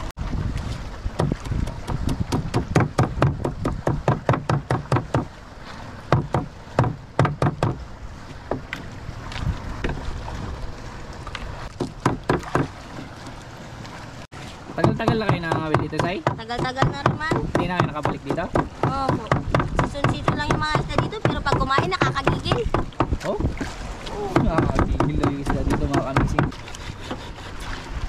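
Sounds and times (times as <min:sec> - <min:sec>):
knife chopping on wooden plank: 0:01.2 - 0:05.3, 0:06.1 - 0:07.8, 0:11.7 - 0:12.7, 0:14.8 - 0:23.5, 0:24.4 - 0:27.3.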